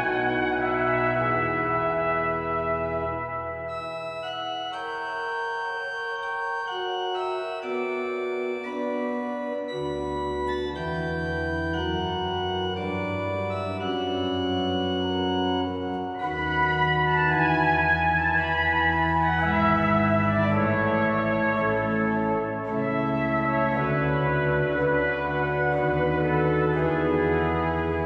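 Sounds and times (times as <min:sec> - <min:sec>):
church pipe organ chords: 0:00.0 - 0:28.0
deep organ bass notes: 0:10.5 - 0:28.0.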